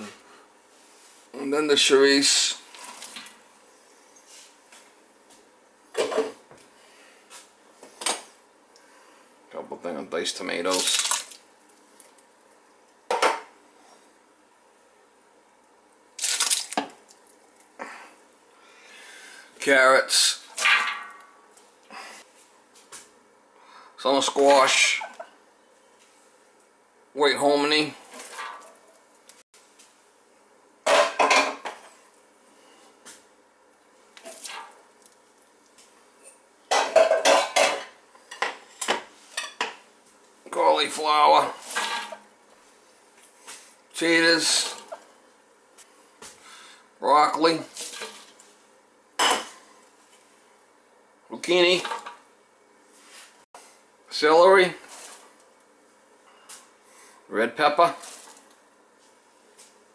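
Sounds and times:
tomatoes pouring into a metal pot: 10.7 - 11.4
metal clattering in stockpot: 20.6 - 21.3, 30.9 - 31.8, 36.7 - 39.8.

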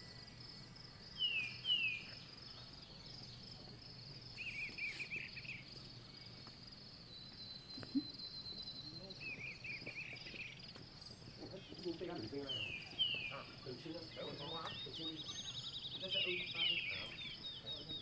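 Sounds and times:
birds chirping: 0.0 - 18.0
insects trilling: 0.0 - 18.0
bird whistles: 4.4 - 5.6.

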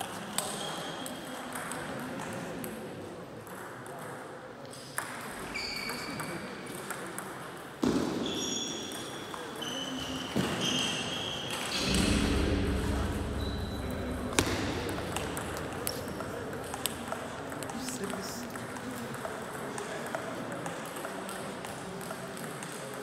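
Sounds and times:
sports shoes squeaking: 9.6 - 11.6.

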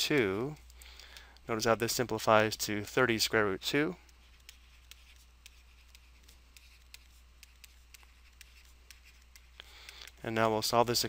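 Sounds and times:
low steady hum: 0.0 - 11.0
stylus tapping on tablet screen: 4.1 - 10.2.

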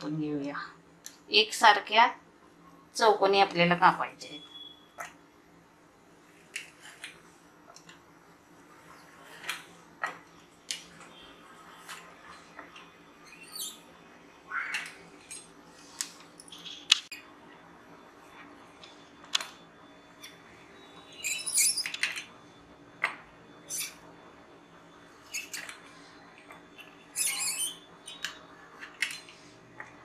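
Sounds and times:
pastry cutter clicks and squeaks: 25.3 - 25.8, 27.1 - 28.4.

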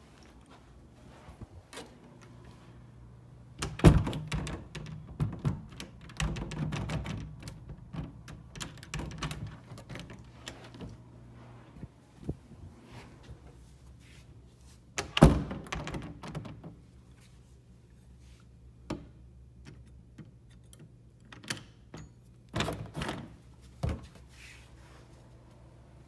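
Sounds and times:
door handle clicks: 3.6 - 10.2.

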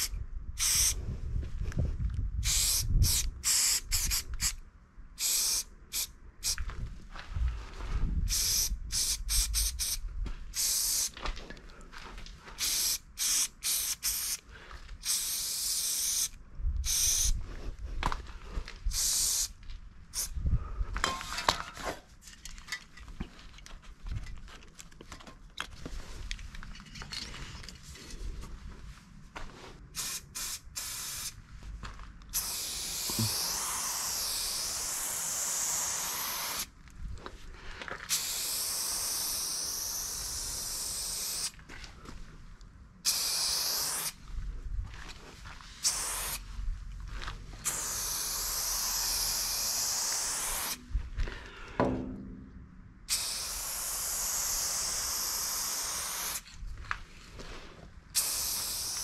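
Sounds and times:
spray paint can hissing bursts: 0.0 - 1.0, 2.4 - 4.6, 5.2 - 6.6, 8.3 - 11.1, 12.6 - 14.4, 15.0 - 17.4, 18.9 - 20.4, 29.9 - 31.4, 32.3 - 36.7, 38.1 - 41.5, 43.0 - 44.2, 45.8 - 46.4, 47.6 - 50.8, 53.1 - 56.5, 58.1 - 59.0.

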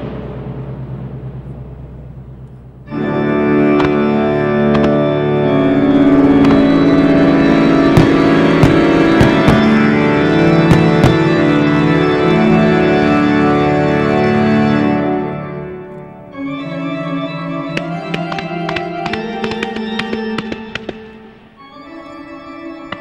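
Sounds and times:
organ show music: 1.5 - 23.0
firework shells banging: 3.6 - 11.8, 17.7 - 21.6
sharp cracks: 3.6 - 11.9, 17.7 - 21.7, 22.8 - 23.0.

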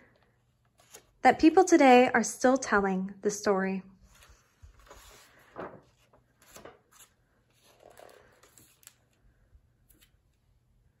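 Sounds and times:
book pages rustling: 0.1 - 1.2, 4.1 - 9.2.

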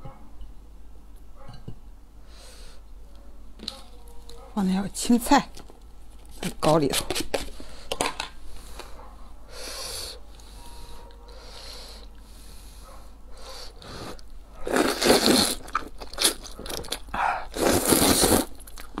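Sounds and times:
eating sounds: 13.0 - 19.0
person slurping noodles: 13.5 - 19.0.

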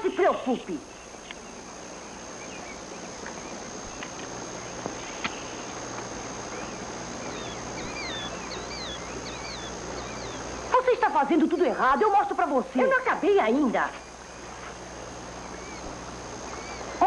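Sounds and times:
steady hiss: 0.0 - 17.0
bird chirping: 0.2 - 11.9, 15.3 - 17.0
faint ticks: 1.2 - 1.5.

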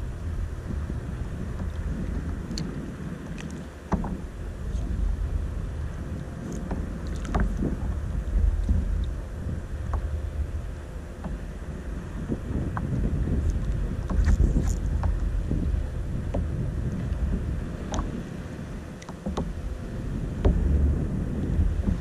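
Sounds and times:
water lapping at kayak hull: 0.0 - 22.0
wind buffeting microphone: 0.0 - 22.0
light knocks and clicks: 3.3 - 4.9, 6.5 - 7.8, 12.7 - 15.3, 19.0 - 19.6.

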